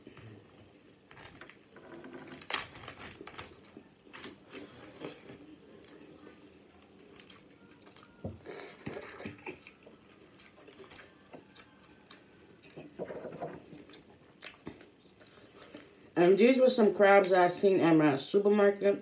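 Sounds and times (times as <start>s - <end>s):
wet slurping and chewing: 8.4s - 11.0s.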